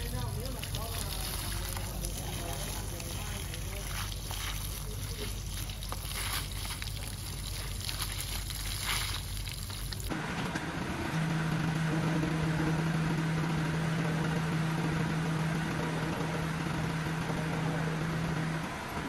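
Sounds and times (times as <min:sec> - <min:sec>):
hose water splashing on wood: 0:00.0 - 0:10.1
steady hum: 0:00.0 - 0:19.0
truck engine running: 0:00.0 - 0:19.0.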